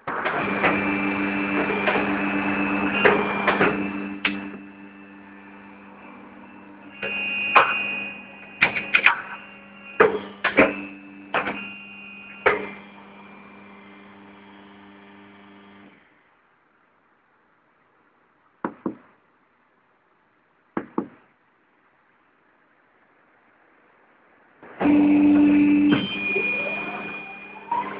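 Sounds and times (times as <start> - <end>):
tyre changer electric hum: 0.0 - 16.0, 24.6 - 27.9.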